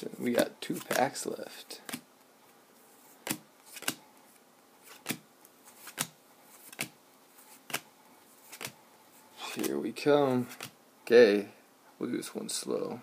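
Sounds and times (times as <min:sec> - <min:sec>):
trading cards snapping: 0:01.8 - 0:02.0, 0:03.2 - 0:04.0, 0:04.9 - 0:05.2, 0:05.8 - 0:07.0, 0:07.6 - 0:07.8, 0:08.4 - 0:08.8.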